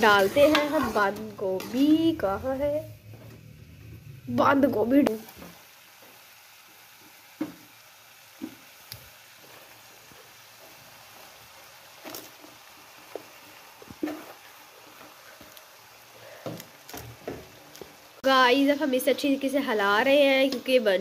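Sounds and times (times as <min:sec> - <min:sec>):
spatula stirring cabbage: 0:00.0 - 0:03.8, 0:05.2 - 0:18.1
vegetables sizzling in a frying pan: 0:00.0 - 0:21.0.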